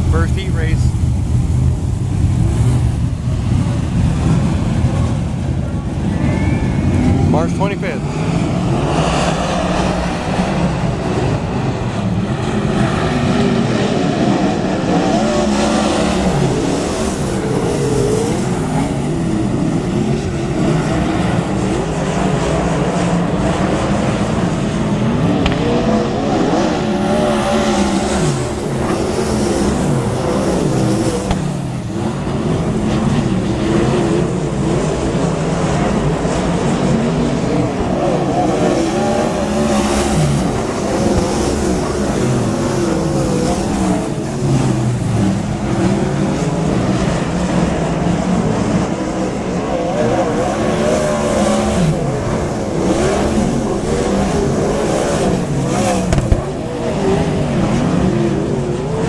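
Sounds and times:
racing car engines: 0:00.0 - 0:59.0.

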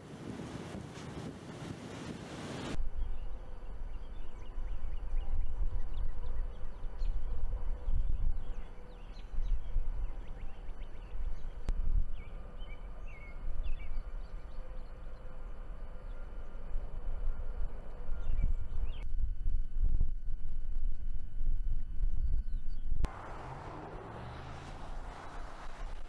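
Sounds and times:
loud wind on microphone: 0:00.0 - 0:14.3, 0:16.8 - 0:23.1
gusty wind rumble: 0:00.0 - 0:14.5, 0:15.5 - 0:26.0.

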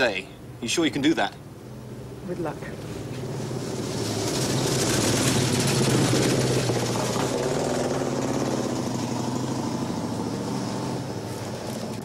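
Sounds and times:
vehicle engine driving past: 0:02.6 - 0:12.0.

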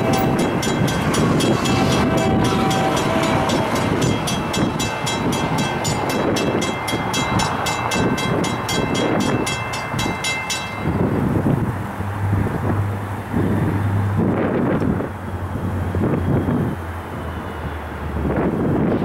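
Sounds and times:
railroad crossing bell ringing: 0:00.0 - 0:11.4.

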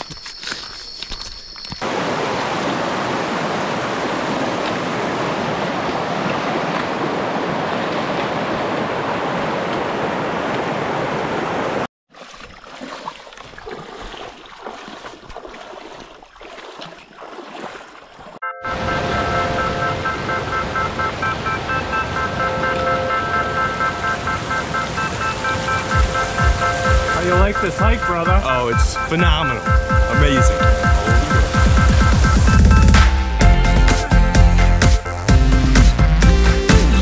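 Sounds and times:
footsteps on a trail: 0:00.0 - 0:01.9, 0:12.1 - 0:18.4
mountain stream rushing: 0:01.8 - 0:33.1.

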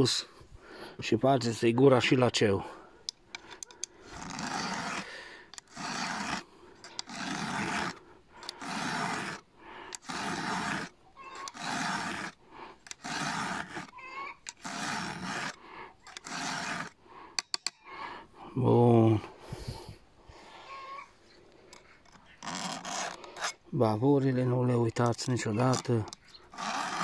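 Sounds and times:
file rasping on saw chain: 0:03.1 - 0:17.8, 0:22.0 - 0:23.6, 0:24.9 - 0:27.0.

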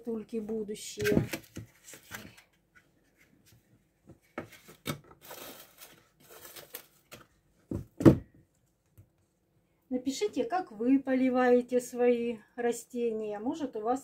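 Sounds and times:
rustling: 0:04.5 - 0:07.4.

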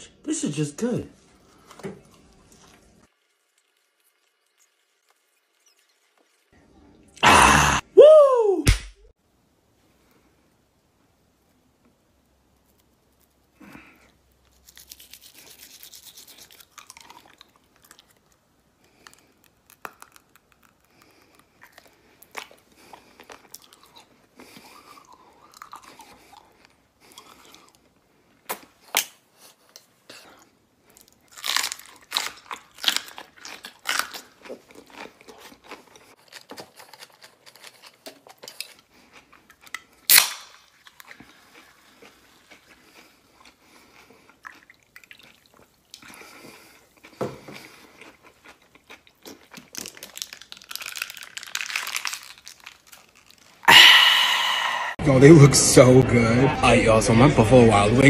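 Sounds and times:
toothbrush scrubbing teeth: 0:02.1 - 0:06.6, 0:14.5 - 0:18.2
mouth noises: 0:53.7 - 0:56.6.

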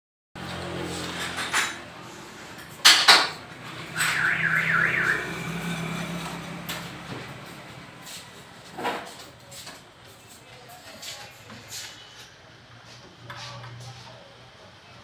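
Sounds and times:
electronic alarm warbling: 0:03.8 - 0:05.9.

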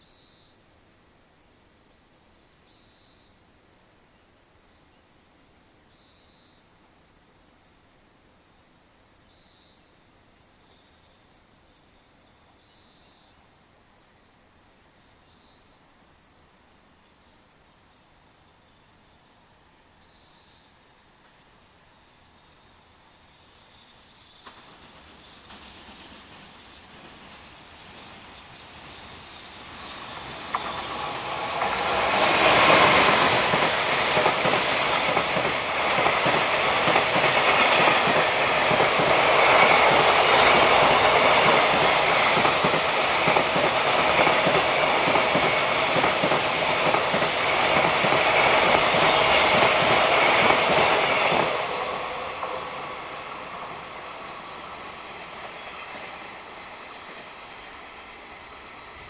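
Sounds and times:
wheels clickety-clack on rails: 0:24.4 - 0:58.6
electric locomotive passing: 0:24.4 - 0:59.0.

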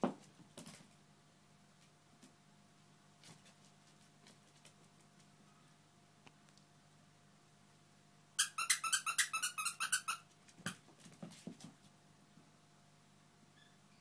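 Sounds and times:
squeaky dog toy squeaks: 0:08.4 - 0:10.8.

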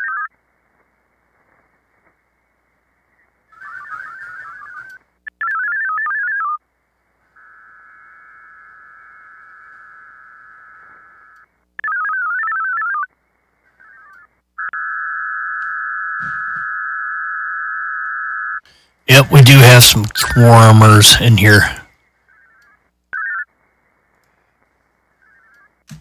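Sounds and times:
buzzing multi-tone modem signal: 0:14.6 - 0:17.9, 0:19.1 - 0:21.8.

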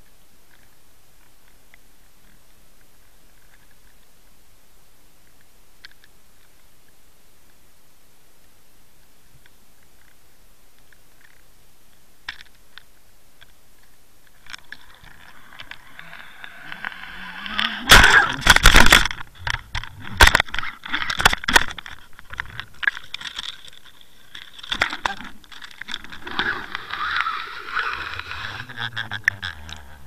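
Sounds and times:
knocks and rattles of fishing rig: 0:17.9 - 0:26.5.

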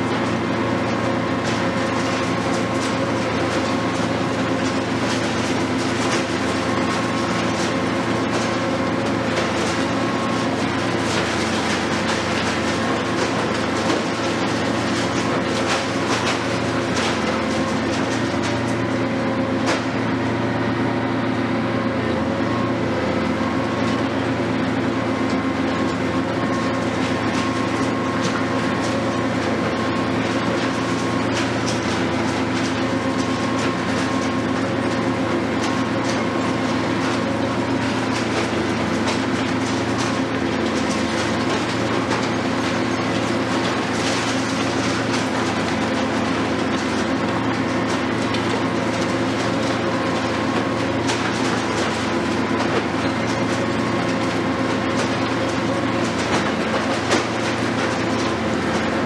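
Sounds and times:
masonry crunching and falling: 0:00.0 - 0:20.3, 0:22.3 - 0:59.0
excavator engine and hydraulics: 0:00.0 - 0:59.0.

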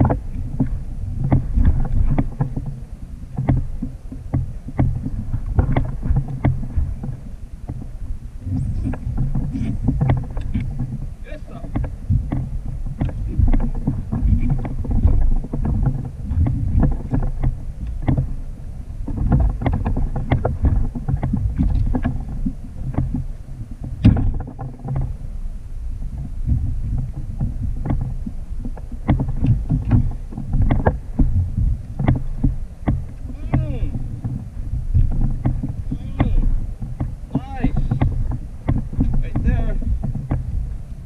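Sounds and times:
water slapping against kayak hull: 0:00.0 - 0:41.0
wind rumble on microphone: 0:00.0 - 0:41.0
short knocks and taps: 0:03.4 - 0:07.8, 0:11.6 - 0:18.3, 0:32.0 - 0:34.4, 0:35.0 - 0:40.5.

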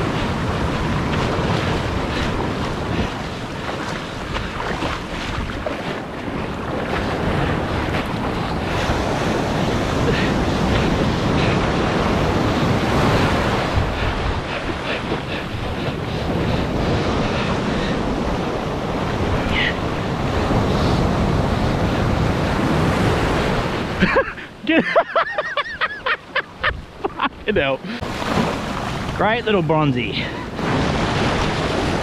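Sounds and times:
wind buffeting microphone: 0:00.0 - 0:24.2
surf breaking and washing: 0:00.0 - 0:32.0.

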